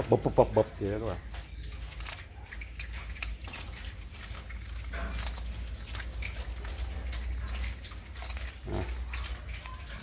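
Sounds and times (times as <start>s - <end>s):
animal crunching fish: 0.0s - 10.0s.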